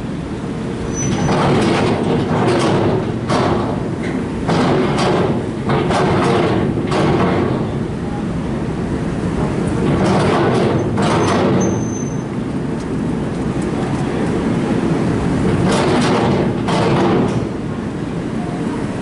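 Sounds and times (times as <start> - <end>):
high squeak: 0.9 - 1.3, 11.6 - 12.3
steady low rumble: 12.2 - 19.0.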